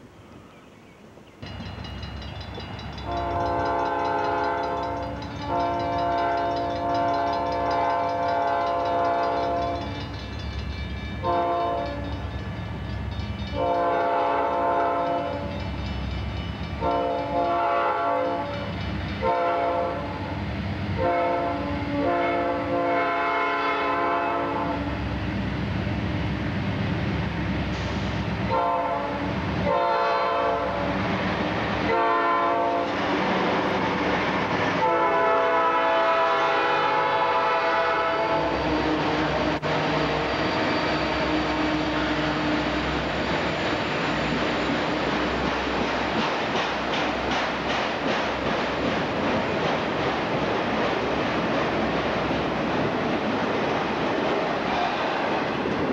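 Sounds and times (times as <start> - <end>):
train wheels rumbling on rails: 1.4 - 55.9
locomotive air horn blasts: 3.0 - 9.8, 11.2 - 12.1, 13.5 - 15.5, 16.8 - 20.2, 21.0 - 25.0, 28.5 - 31.0, 31.9 - 32.9, 34.8 - 43.0.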